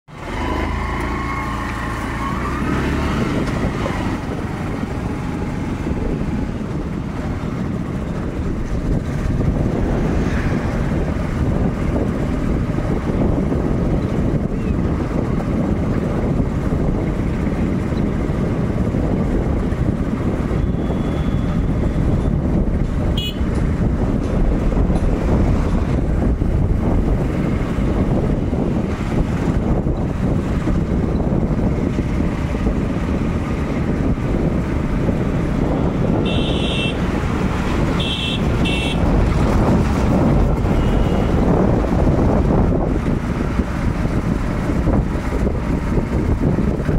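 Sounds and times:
rising engine tone: 0:00.1 - 0:04.3
road traffic rumble: 0:00.1 - 0:46.9.

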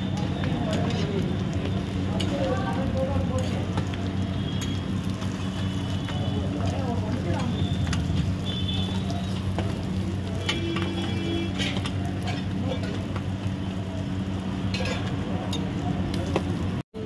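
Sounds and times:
constant low hum: 0:00.0 - 0:16.8
food sizzling on a griddle: 0:00.0 - 0:17.0
metal spatula clinking and scraping: 0:10.4 - 0:13.1, 0:14.7 - 0:15.7.

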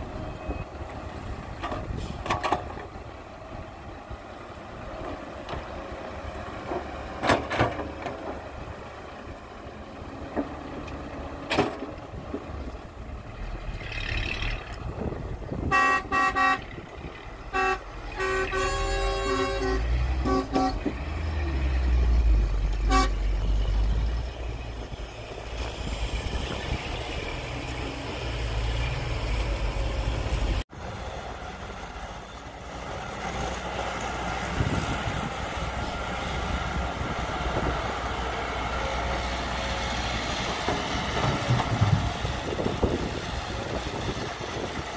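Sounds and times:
diesel engines running: 0:00.0 - 0:44.9
vehicle horn toots: 0:15.6 - 0:16.7, 0:17.5 - 0:20.9, 0:22.8 - 0:23.2.

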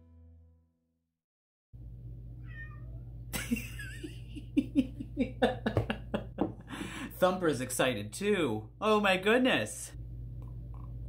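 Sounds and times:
cat meowing: 0:02.4 - 0:03.2.

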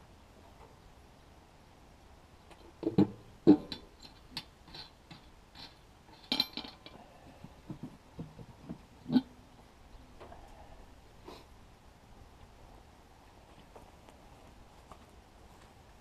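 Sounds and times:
metal clinks and knocks: 0:02.8 - 0:07.0.

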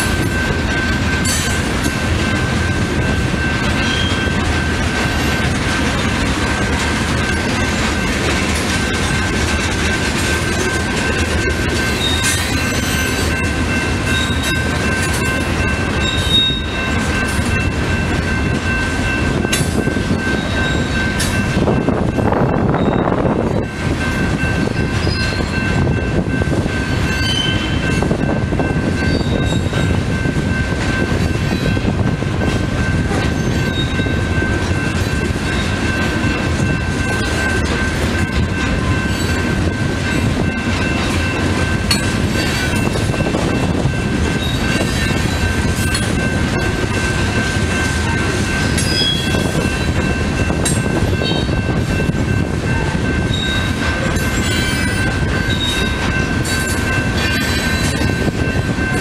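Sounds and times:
freight cars rumbling on rails: 0:00.0 - 0:59.0.

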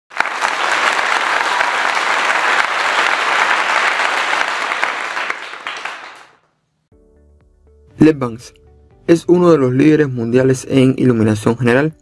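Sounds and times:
crowd applauding: 0:00.1 - 0:06.4.

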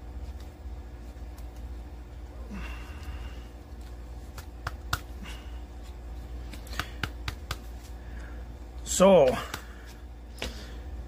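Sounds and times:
cards clicking and tapping: 0:03.8 - 0:05.2, 0:06.4 - 0:07.9.

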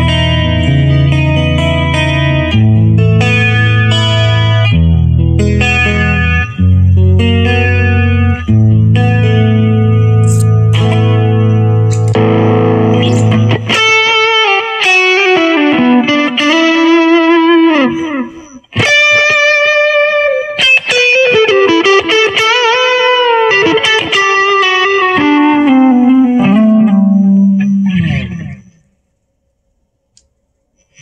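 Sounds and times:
electric guitar lead melody: 0:00.0 - 0:28.8.

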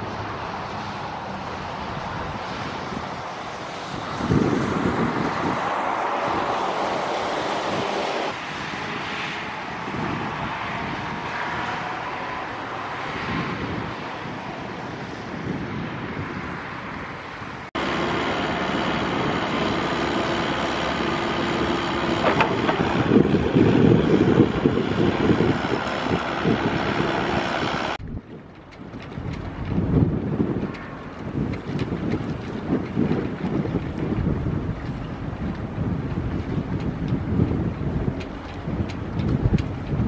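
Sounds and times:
wind buffeting microphone: 0:00.0 - 0:40.0
low steady drone: 0:17.8 - 0:28.0.

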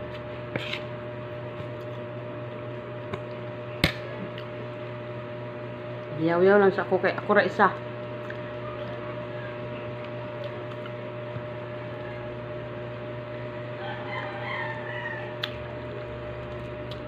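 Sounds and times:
steady low hum: 0:00.0 - 0:17.0
rooster crowing: 0:13.7 - 0:15.5.

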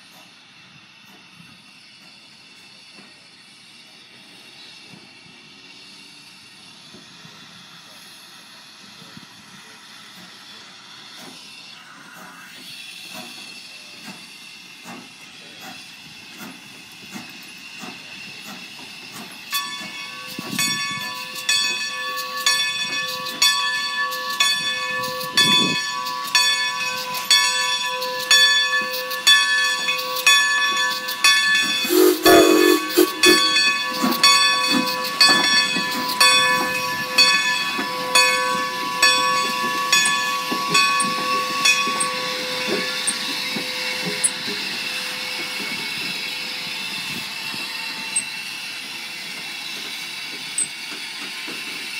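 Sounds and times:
steam hissing: 0:00.0 - 0:51.9
steam locomotive running: 0:00.0 - 0:51.9
high squeal: 0:18.1 - 0:50.9
locomotive whistle blast: 0:20.1 - 0:48.5.

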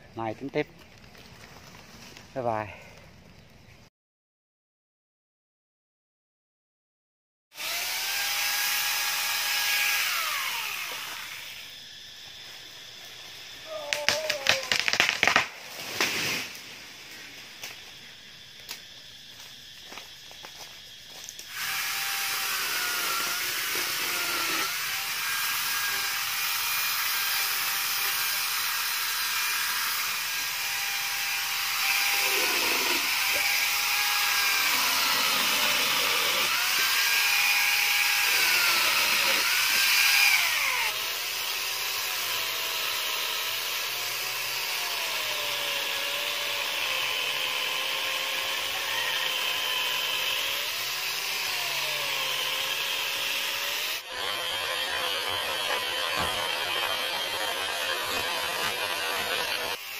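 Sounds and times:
angle grinder cutting wood: 0:07.6 - 0:12.1, 0:21.1 - 0:59.9.

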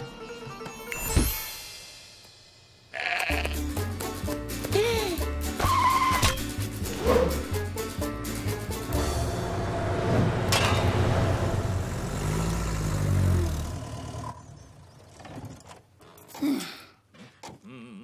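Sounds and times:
truck engine driving past: 0:08.7 - 0:15.2.

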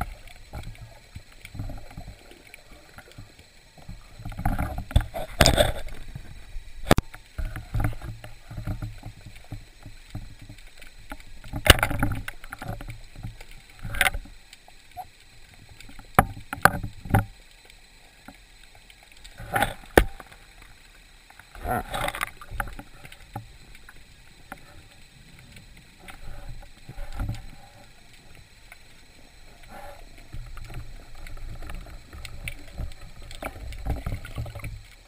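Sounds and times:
low rumbling water movement: 0:00.0 - 0:35.0
sharp clicks and knocks underwater: 0:00.0 - 0:35.0.

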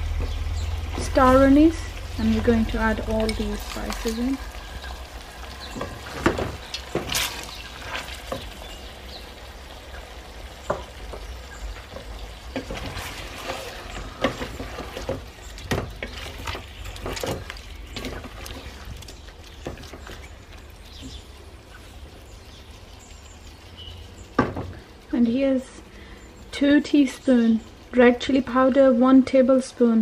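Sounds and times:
chicken sizzling in oil: 0:00.0 - 0:29.7
spatula scraping and knocking pot: 0:11.8 - 0:20.4.

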